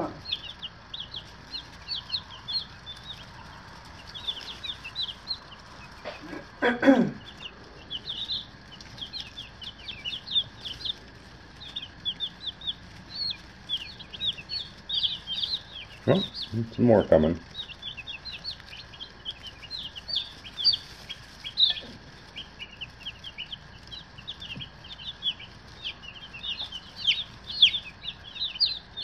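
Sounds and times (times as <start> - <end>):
chicks peeping: 0.0 - 29.0
person murmuring: 6.1 - 7.2.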